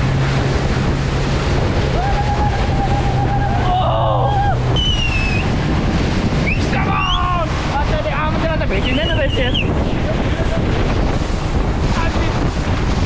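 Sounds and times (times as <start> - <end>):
speedboat engine droning: 0.0 - 13.0
wind buffeting microphone: 0.0 - 13.0
person whooping: 1.9 - 4.6, 6.7 - 7.5
short rising shouts: 1.9 - 5.5.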